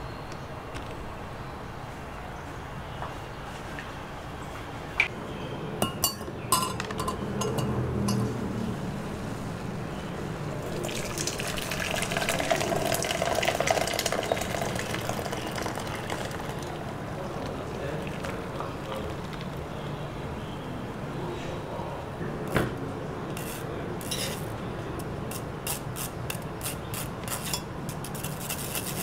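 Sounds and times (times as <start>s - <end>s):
clinks of glass or crockery: 5.8s - 8.3s
liquid pouring into container: 10.6s - 19.5s.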